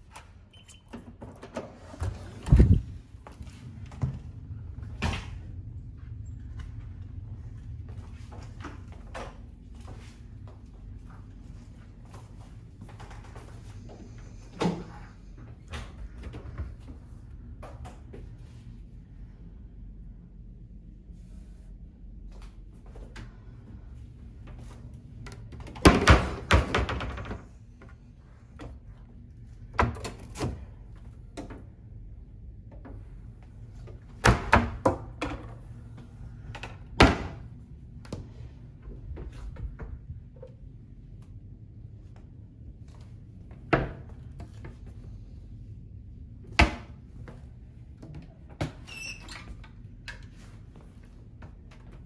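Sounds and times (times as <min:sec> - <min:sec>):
cabinet and fridge doors opening: 0:00.3 - 0:03.0.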